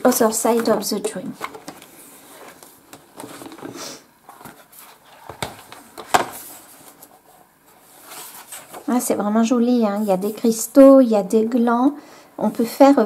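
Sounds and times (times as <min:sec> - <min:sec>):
pages rustling: 0:00.0 - 0:09.0
hands sliding over paper: 0:01.8 - 0:09.0.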